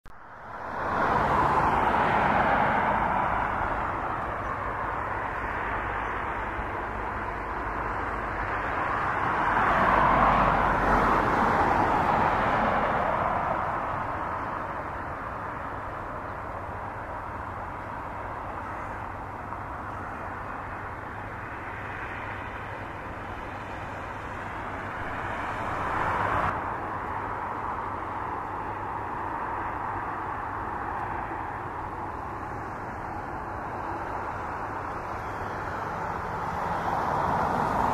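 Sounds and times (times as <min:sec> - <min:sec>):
jet engines running: 0:22.6 - 0:27.1.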